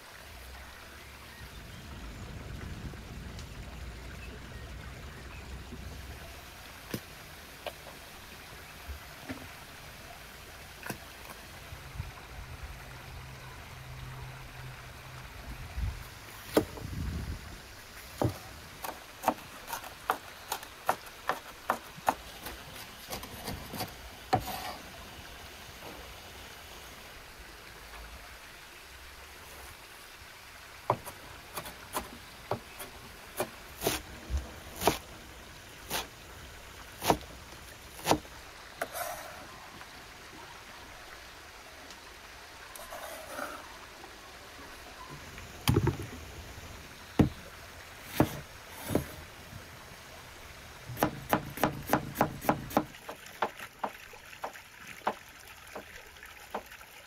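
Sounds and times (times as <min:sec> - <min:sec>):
knife chopping on wooden board: 0:34.8 - 0:35.0, 0:51.0 - 0:52.9.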